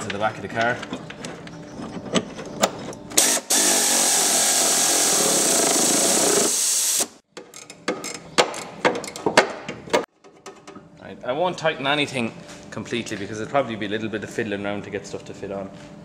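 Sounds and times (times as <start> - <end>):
power drill-driver running: 3.2 - 7.2.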